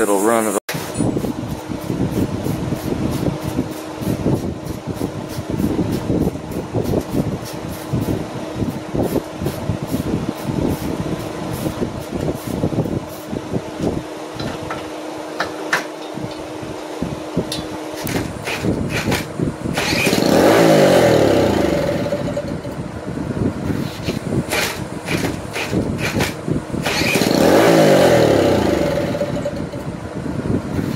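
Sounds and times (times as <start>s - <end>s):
minibike engine running roughly: 18.2s - 22.8s, 24.5s - 30.0s.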